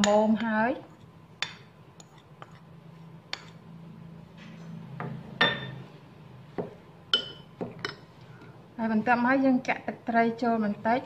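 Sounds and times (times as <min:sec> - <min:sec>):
metal spoon clinking in ceramic bowl: 0:00.0 - 0:00.5, 0:05.4 - 0:05.8, 0:07.1 - 0:08.1.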